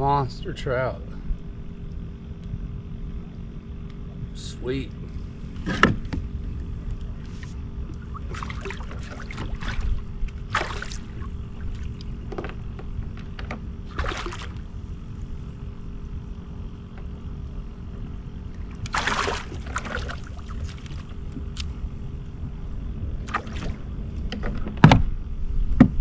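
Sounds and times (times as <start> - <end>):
steady low rumble: 0.0 - 26.0
fish splashing in water: 8.0 - 12.1, 13.9 - 14.8, 18.8 - 21.2.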